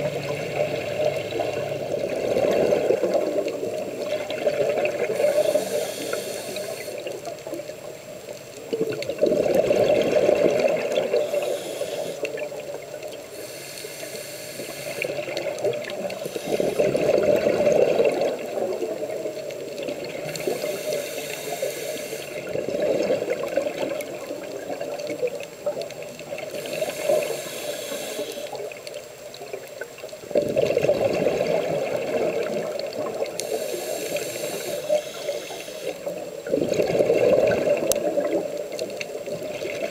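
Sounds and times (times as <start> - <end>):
regulator hiss on inhale: 5.0 - 7.6, 10.9 - 17.7, 20.1 - 22.8, 26.4 - 29.0, 33.1 - 36.4
exhaust bubbles rushing: 16.8 - 19.0, 30.4 - 33.0.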